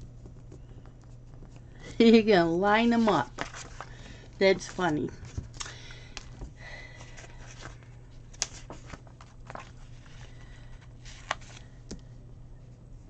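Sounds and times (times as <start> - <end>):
paper rustling: 2.8 - 11.8.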